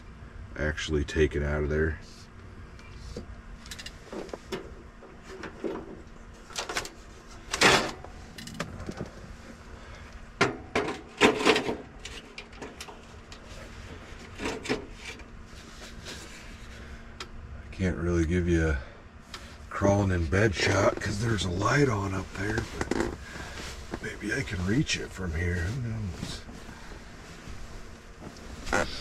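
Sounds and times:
rustling: 20.6 - 29.0.

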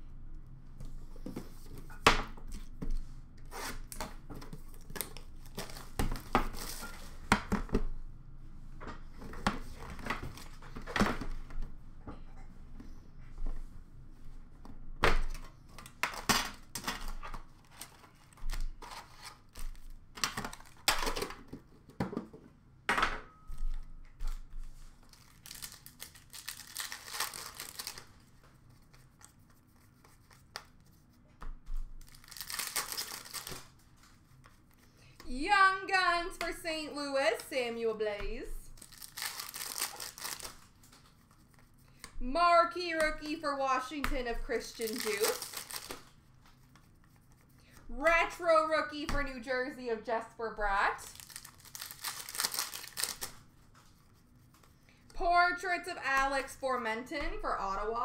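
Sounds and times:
wrappers tearing and crinkling: 25.0 - 28.2, 32.0 - 33.8, 38.7 - 41.2, 44.7 - 46.2, 51.0 - 53.4.

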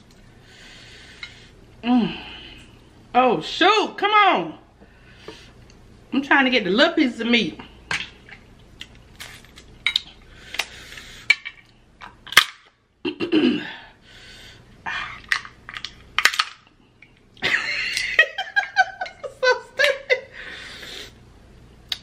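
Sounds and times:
crab shells cracking: 15.2 - 16.7.

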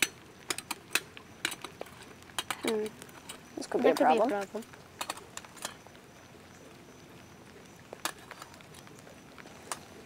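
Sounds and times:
light rain patter: 0.0 - 10.0.

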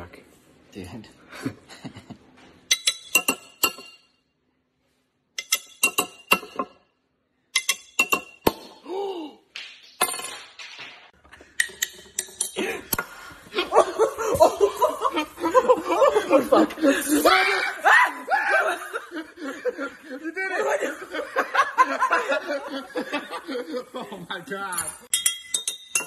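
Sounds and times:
glass bottle clinking: 2.7 - 4.2, 5.4 - 6.9, 7.6 - 8.7, 11.5 - 12.6, 24.7 - 26.0.

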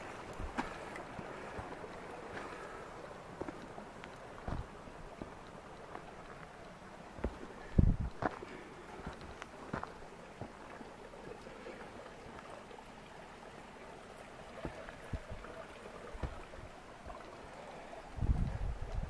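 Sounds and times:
footsteps on rocky trail: 0.0 - 6.5, 7.1 - 10.6, 14.6 - 15.6, 16.2 - 16.6.

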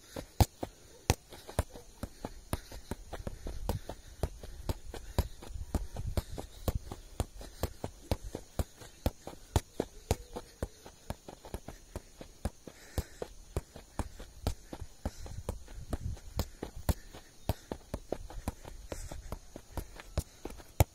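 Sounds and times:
football kicked with dull taps: 0.0 - 20.9.

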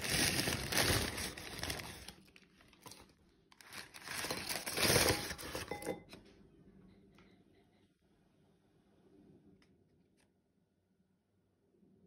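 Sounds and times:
food bag crinkling: 0.0 - 6.0.

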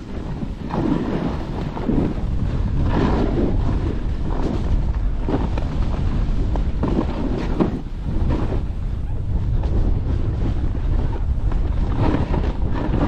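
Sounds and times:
skis scraping through snow: 0.0 - 13.0
wind buffeting microphone: 0.0 - 13.0.

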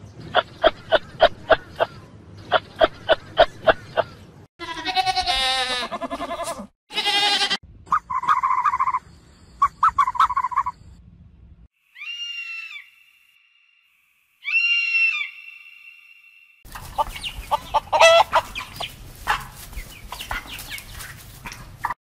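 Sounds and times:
goats bleating: 4.6 - 7.6.

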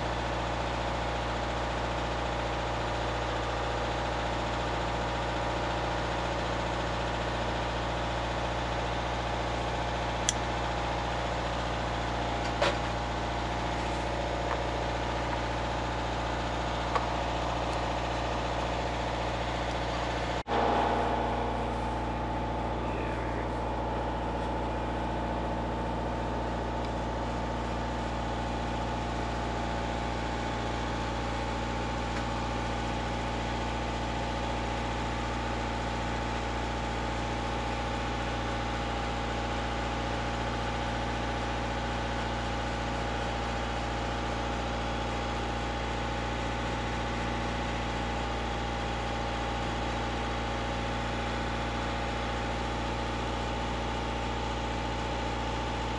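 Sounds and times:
boat engine humming: 8.5 - 34.8.

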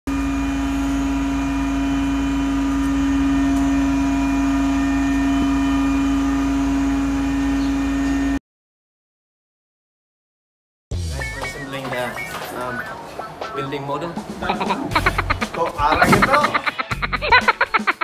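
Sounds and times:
crane engine running: 0.1 - 8.4, 11.0 - 17.2.

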